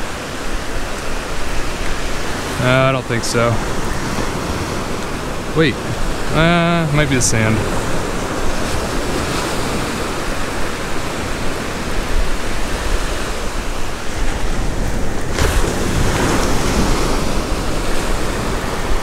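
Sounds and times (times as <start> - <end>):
surf waves breaking: 0.0 - 19.0.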